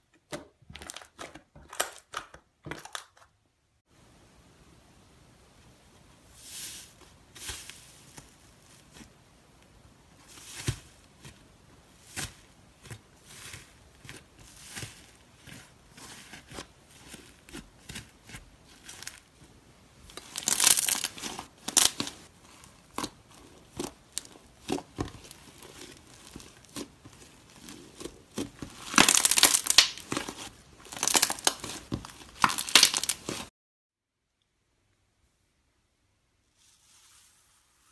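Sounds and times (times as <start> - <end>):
slime crunching and crackling: 10.2 - 33.5.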